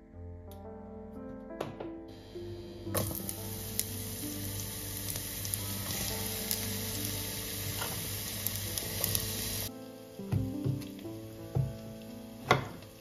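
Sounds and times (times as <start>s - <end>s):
onion sizzling in hot oil: 2.2s - 13.0s
oil popping and crackling: 2.9s - 9.7s.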